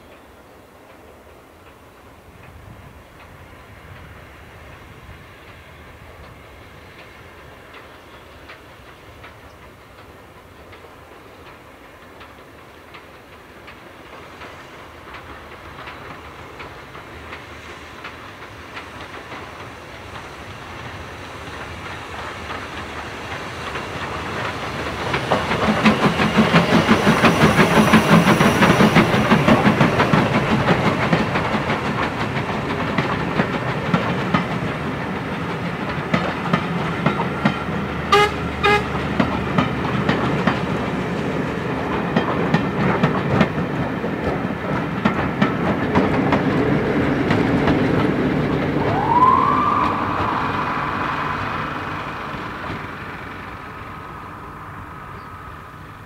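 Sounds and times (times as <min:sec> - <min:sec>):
train wheels clacking over rail joints: 0:00.0 - 0:48.8
steam locomotive exhaust beats: 0:00.0 - 0:56.0
train whistle toots: 0:38.1 - 0:39.0, 0:48.8 - 0:51.7.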